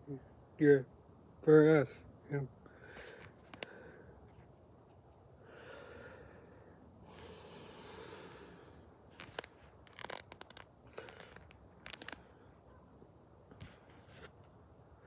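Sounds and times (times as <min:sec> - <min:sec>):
breath-like noise: 0:05.4 - 0:09.2.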